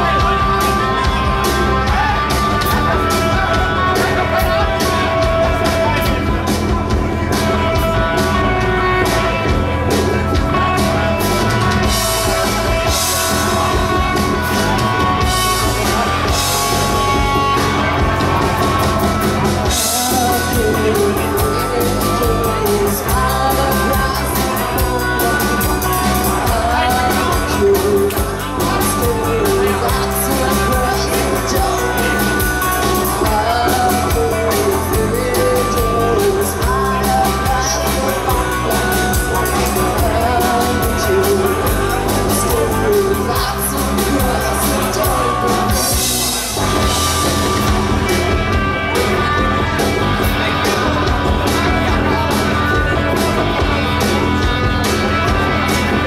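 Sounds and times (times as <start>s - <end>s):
punk rock band playing: 0.0s - 56.0s
woman singing into microphone: 19.8s - 25.8s, 33.2s - 45.9s.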